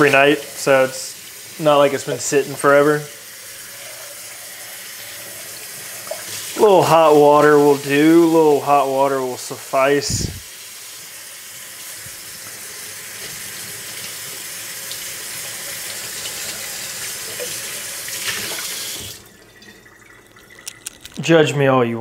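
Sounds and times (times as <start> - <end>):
tap running water into sink: 11.8 - 20.7.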